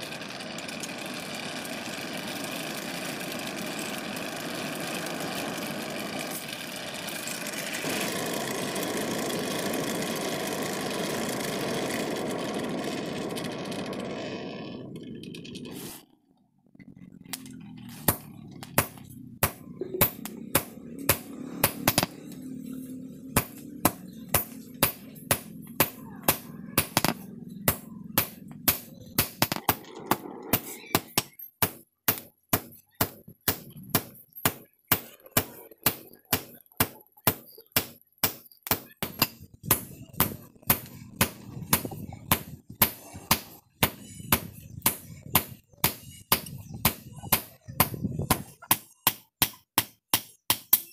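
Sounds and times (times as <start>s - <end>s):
hammer blows ringing on anvil: 31.0s - 50.9s.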